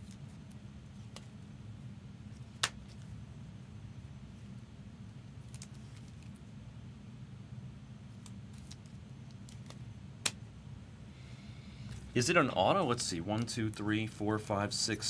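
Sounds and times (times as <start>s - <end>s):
card sleeves clicking and rustling: 5.4s - 6.4s, 8.2s - 10.4s.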